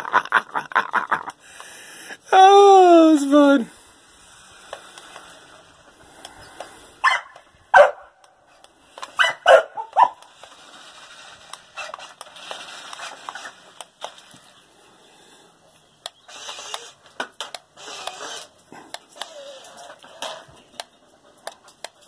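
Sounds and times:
dog barking: 7.0 - 8.1, 9.2 - 10.2.

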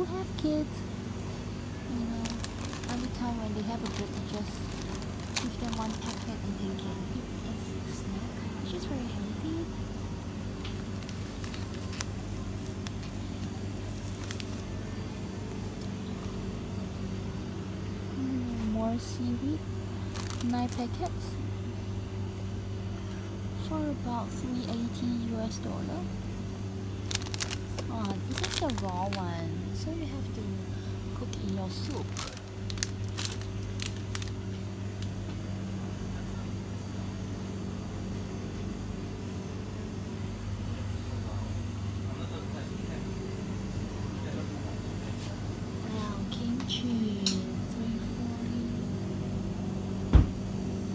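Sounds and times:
low electrical hum: 0.0 - 50.9
plastic packet clicks: 10.6 - 13.2, 13.9 - 14.6, 27.1 - 28.9, 32.0 - 34.4.

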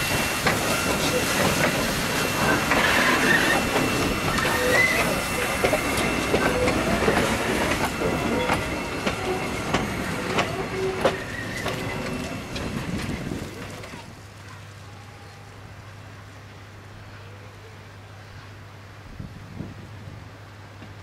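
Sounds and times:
steam hissing: 0.0 - 14.0
train wheels clanking over rails: 0.0 - 14.0
wheel squeals: 2.3 - 12.5.

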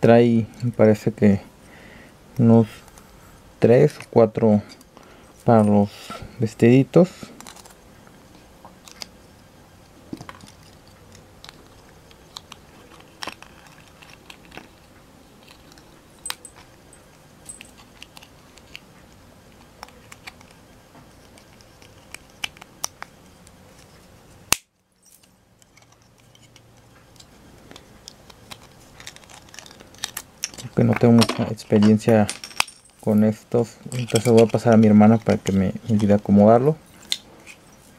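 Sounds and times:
small plastic parts clicking: 25.6 - 33.0.

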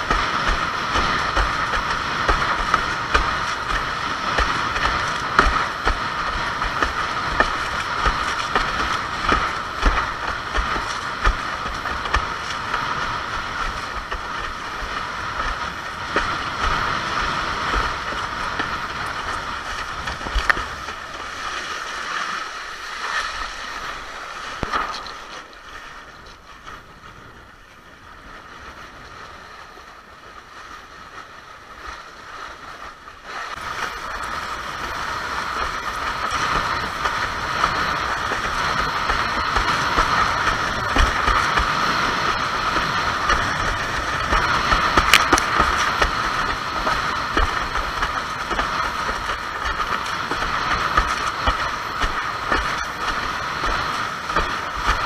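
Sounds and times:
wind buffeting microphone: 0.0 - 21.6, 33.2 - 55.0
water rushing against board: 0.0 - 55.0.

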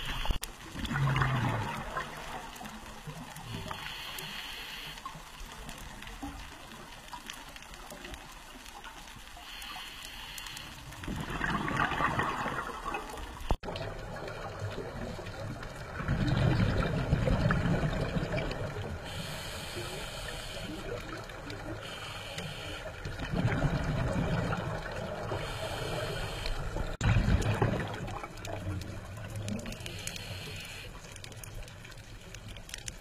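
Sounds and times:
exhaled bubbles gushing: 0.0 - 3.3, 11.0 - 19.1, 23.1 - 25.7, 26.7 - 29.9
regulator hissing inhale: 3.5 - 5.2, 9.4 - 11.0, 19.0 - 23.1, 25.3 - 27.0, 29.8 - 31.2.

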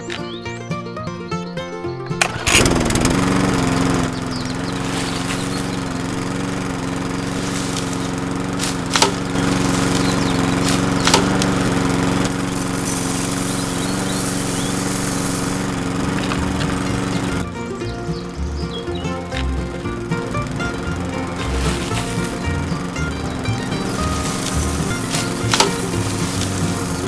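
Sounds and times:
small electric motor humming: 2.3 - 27.0
sharp clicks: 7.3 - 17.4, 23.1 - 27.0.

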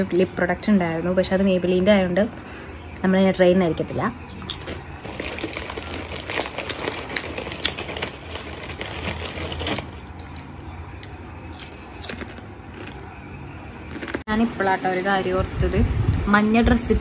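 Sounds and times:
chips being chewed: 4.3 - 13.1, 13.8 - 14.2.

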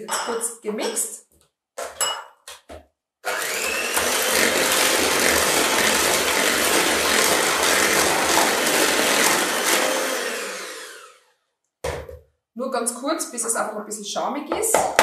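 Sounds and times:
electric hand mixer running: 3.2 - 11.3.

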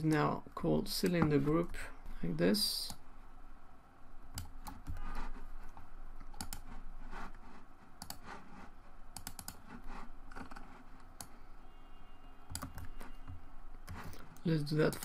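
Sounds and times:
computer keyboard typing: 4.3 - 5.2, 6.2 - 6.8, 8.0 - 8.3, 9.2 - 9.7, 10.3 - 11.4, 12.5 - 15.0.

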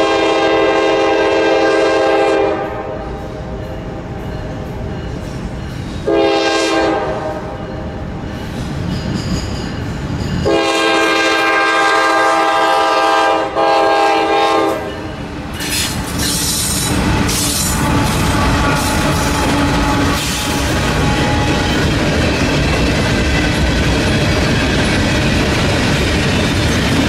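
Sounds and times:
locomotive air horn blasts: 0.0 - 3.1, 6.0 - 7.6, 10.4 - 15.1, 17.4 - 21.7
train wheel noise: 0.0 - 27.0.

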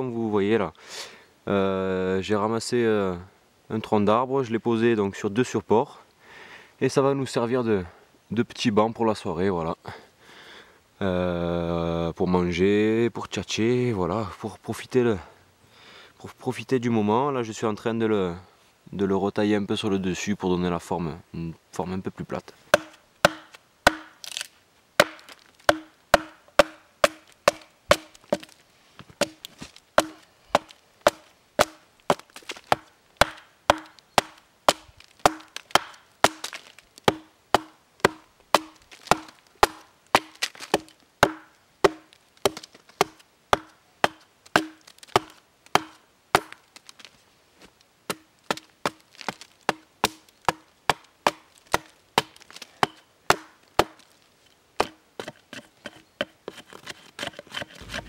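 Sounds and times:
hatchet chopping log: 22.7 - 28.6, 29.2 - 47.0, 48.1 - 54.1.

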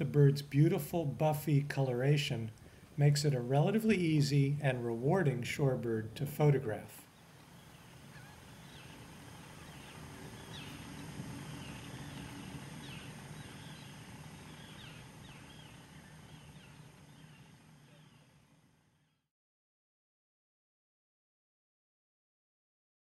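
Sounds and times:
steady background noise: 0.0 - 19.0
shorebirds chirping: 7.1 - 19.2.

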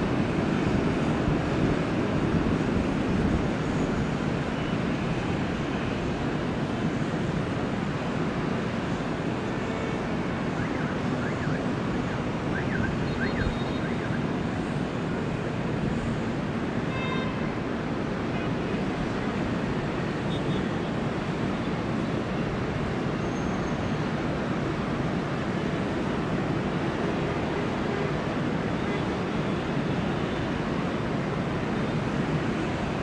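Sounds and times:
brief horn-like tone: 16.9 - 17.5.

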